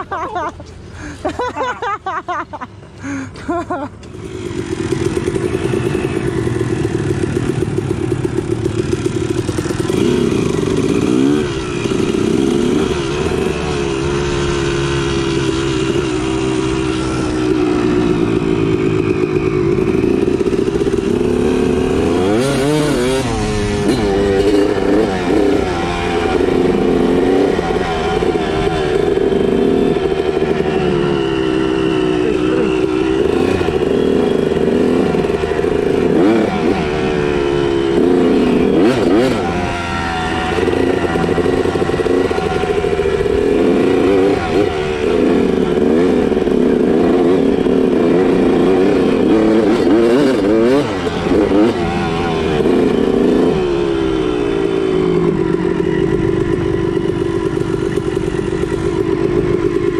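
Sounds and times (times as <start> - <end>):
dirt bike engine revving: 4.1 - 59.9.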